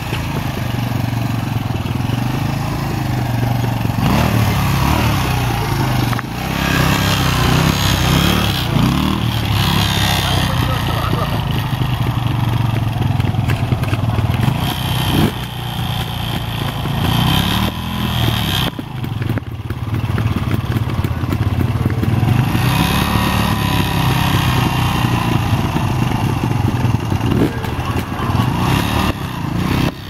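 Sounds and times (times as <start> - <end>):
motorbike engine revving: 0.0 - 30.0.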